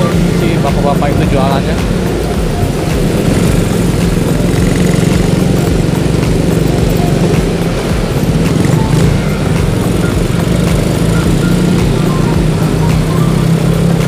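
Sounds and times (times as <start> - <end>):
small motorcycle engine running: 0.0 - 14.0
wind and road noise: 0.0 - 14.0.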